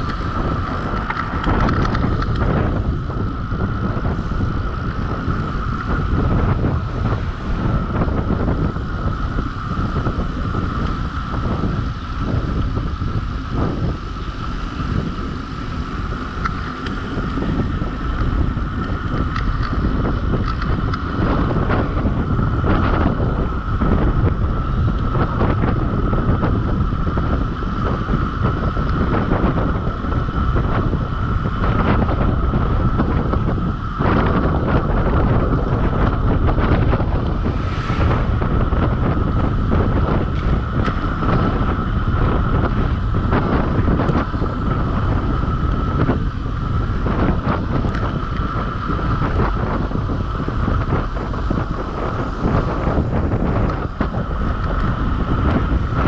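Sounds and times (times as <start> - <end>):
steady high hum: 0.0 - 56.0
wind buffeting microphone: 0.0 - 56.0.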